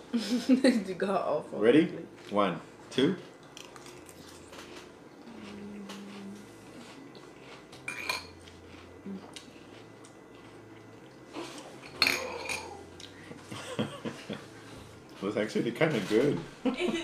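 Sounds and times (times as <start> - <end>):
metal spoons clinking bowl: 7.9 - 8.4.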